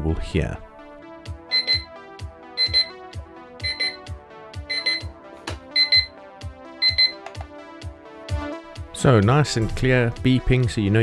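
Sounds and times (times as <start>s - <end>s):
quick high alarm beeps: 1.5s - 1.9s, 2.6s - 3.0s, 3.6s - 4.0s, 5.8s - 6.1s, 6.8s - 7.2s.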